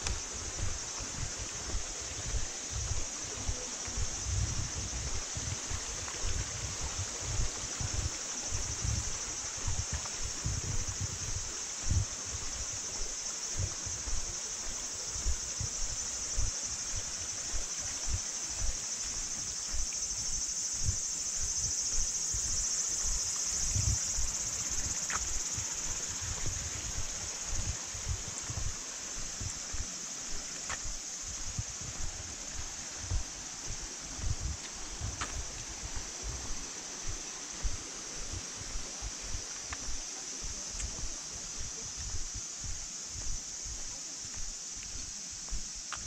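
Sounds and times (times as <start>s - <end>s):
footsteps on path: 0.0s - 46.0s.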